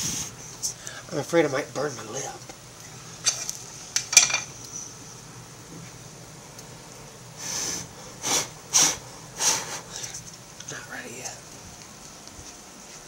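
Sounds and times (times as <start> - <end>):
person blowing puffs of breath: 7.4 - 10.2.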